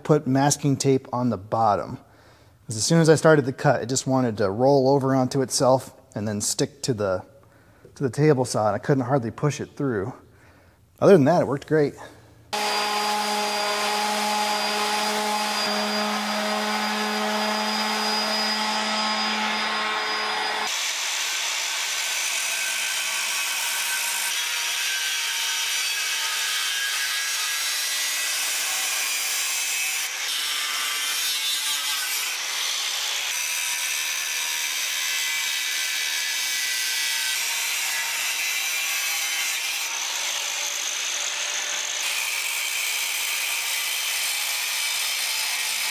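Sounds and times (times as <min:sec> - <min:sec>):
power tool whine: 0:12.5 - 0:24.4
angle grinder cutting steel: 0:12.5 - 0:45.9.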